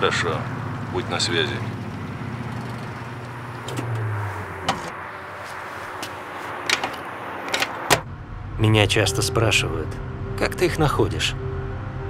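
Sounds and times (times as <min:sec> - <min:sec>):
steady background noise: 0:00.0 - 0:09.5.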